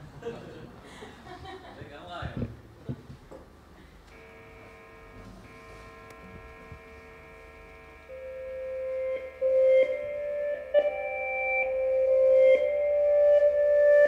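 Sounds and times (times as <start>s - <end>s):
soft sustained instrument chord: 5.2s - 14.0s.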